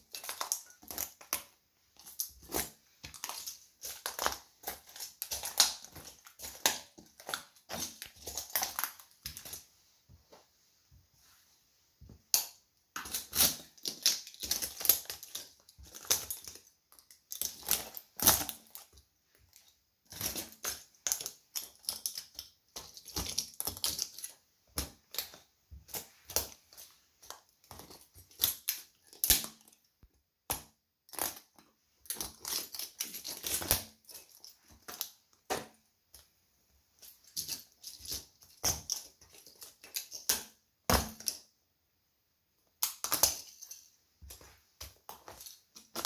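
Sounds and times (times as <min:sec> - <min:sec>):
plastic pieces crackling underfoot: 0:13.0 - 0:29.8.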